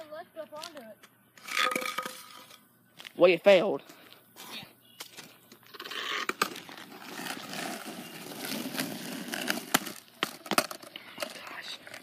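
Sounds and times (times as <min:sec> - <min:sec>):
skateboard wheels rolling on asphalt: 0:05.2 - 0:12.0.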